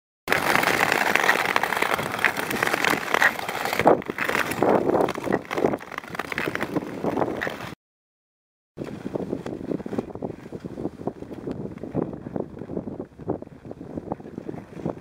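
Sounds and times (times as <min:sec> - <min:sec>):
ice skates scraping on ice: 0:00.3 - 0:07.8
wind on microphone: 0:00.3 - 0:07.8, 0:08.8 - 0:15.0.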